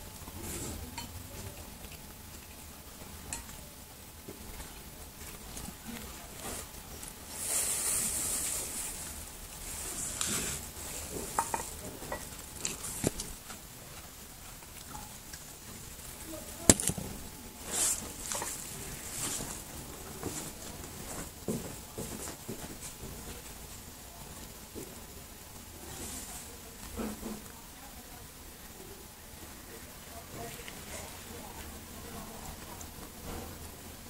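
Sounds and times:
kitten chewing and licking: 0.0s - 21.9s
hissy rustles: 4.6s - 21.4s.

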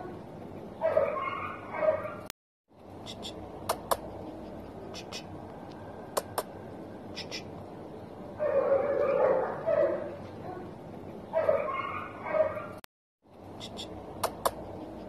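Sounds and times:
sharp clicks: 3.6s - 4.1s, 14.2s - 14.6s.

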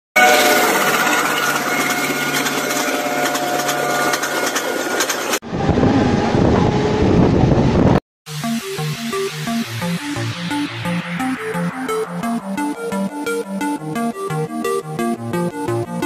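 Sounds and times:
train running noise: 0.2s - 8.0s
wind buffeting microphone: 5.4s - 8.0s.

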